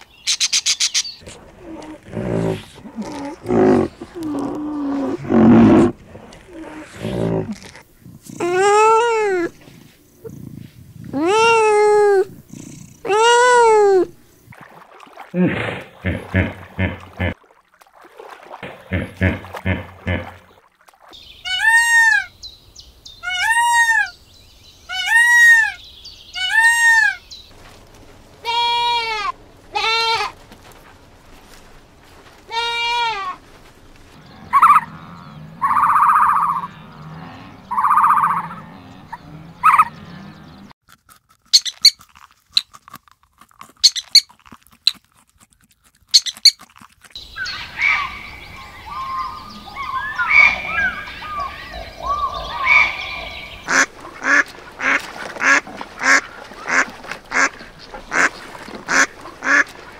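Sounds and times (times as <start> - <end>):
chirping calls: 0.0 - 5.0, 34.2 - 40.7, 47.2 - 54.4
loud arching animal calls: 0.3 - 9.7, 34.2 - 40.7, 47.2 - 59.7
lower animal calls: 0.3 - 14.1, 34.2 - 40.7, 47.3 - 54.4.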